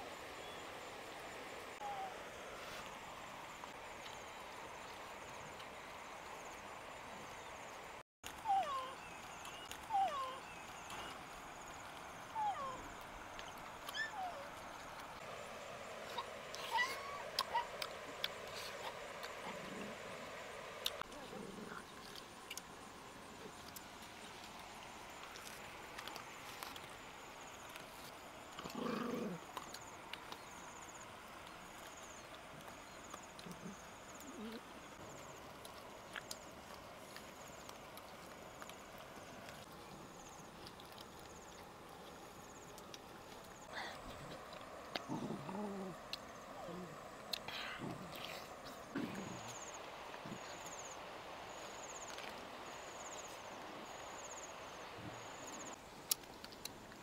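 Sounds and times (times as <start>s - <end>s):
faint steady hiss: 0.0s - 57.0s
dog growling: 21.0s - 21.9s, 28.6s - 29.5s, 45.0s - 47.0s
dogs chewing and crunching bones: 35.0s - 45.3s, 55.9s - 57.0s
insect chirping in trills: 45.0s - 56.0s.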